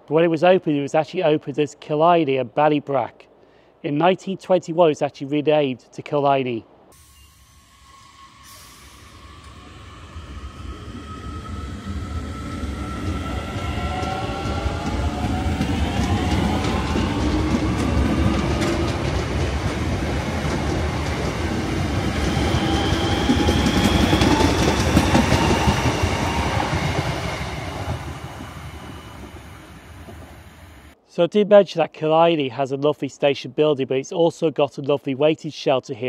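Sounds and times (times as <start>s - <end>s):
train traction motors whining: 7.0s - 31.0s
wheels clattering on rails: 11.6s - 30.4s.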